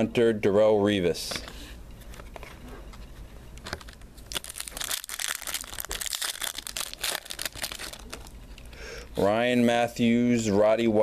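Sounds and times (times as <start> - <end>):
foil wrapper crinkling and tearing: 3.7 - 8.4.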